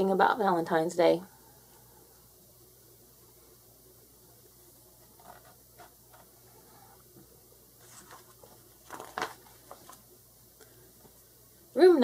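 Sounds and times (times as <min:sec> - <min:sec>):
paper page rustling: 0:05.0 - 0:06.4, 0:07.8 - 0:10.1.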